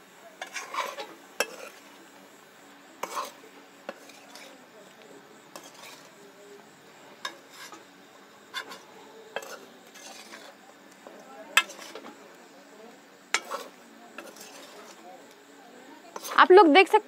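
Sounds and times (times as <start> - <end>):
metal spoon scraping metal pan: 0.4 - 2.0, 3.0 - 4.6, 5.5 - 6.2, 7.2 - 7.8, 8.5 - 10.6, 11.6 - 12.1, 13.3 - 15.0, 16.1 - 16.4.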